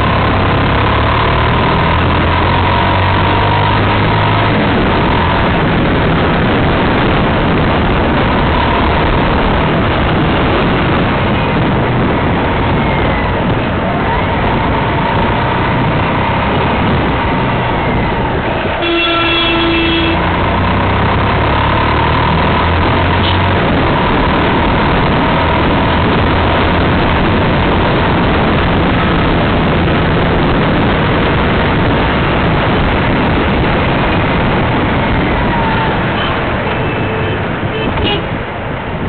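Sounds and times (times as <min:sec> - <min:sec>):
motorcycle engine and road noise: 0:00.0 - 0:39.0
vehicle horn honking: 0:18.6 - 0:20.4, 0:35.4 - 0:38.4.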